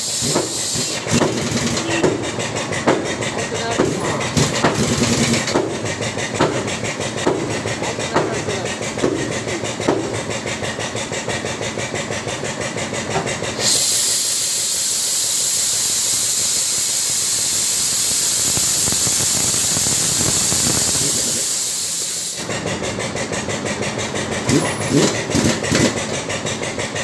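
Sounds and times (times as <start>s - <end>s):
loud hydraulic hiss: 0.0s - 2.1s, 13.5s - 22.6s
engine running with steady pulse: 0.0s - 27.0s.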